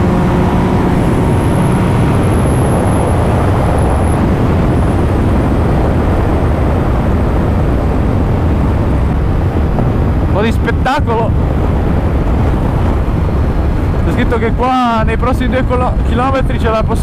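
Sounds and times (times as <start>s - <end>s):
motorcycle engine running: 0.0s - 10.3s
wind rushing over microphone: 0.0s - 17.0s.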